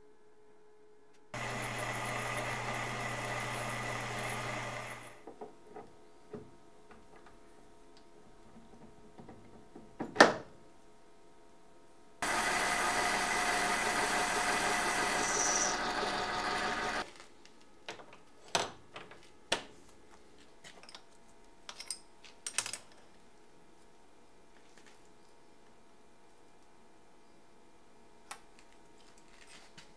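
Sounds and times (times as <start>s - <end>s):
motor-driven machine running: 1.4s - 5.2s, 12.2s - 17.1s.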